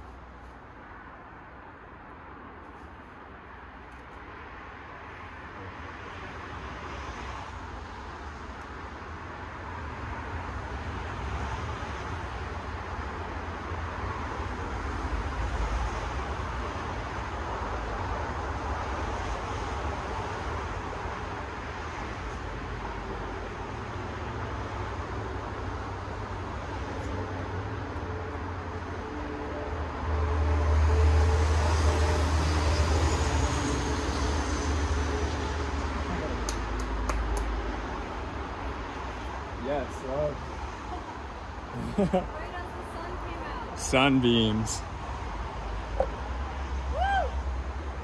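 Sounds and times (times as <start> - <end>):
outdoor rumble with hiss: 34.5 - 48.0.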